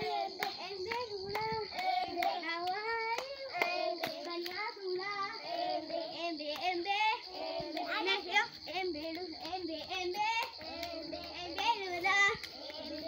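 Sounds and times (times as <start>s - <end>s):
hand claps: 0.0s - 4.7s, 6.5s - 8.2s, 9.0s - 13.0s
children singing a chant: 0.0s - 13.0s.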